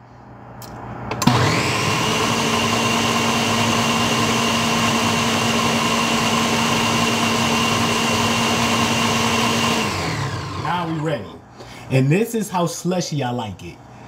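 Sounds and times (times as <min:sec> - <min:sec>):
blender running at high speed: 0:01.2 - 0:11.0.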